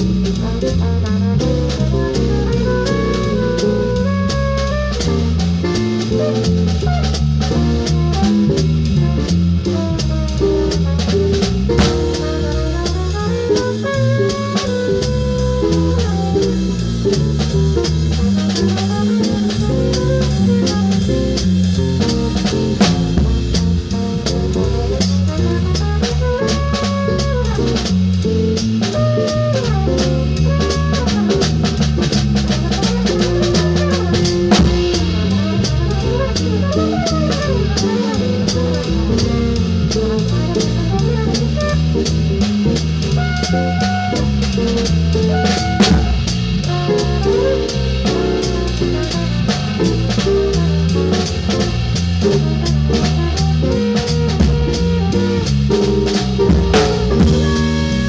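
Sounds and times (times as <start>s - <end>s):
bass line: 0.0s - 58.0s
flugelhorn melody: 0.0s - 58.0s
jazz guitar: 0.0s - 58.0s
cymbal and rimshot strikes: 10.8s - 13.7s, 14.3s - 25.2s, 31.1s - 40.7s, 42.2s - 50.6s, 55.5s - 58.0s.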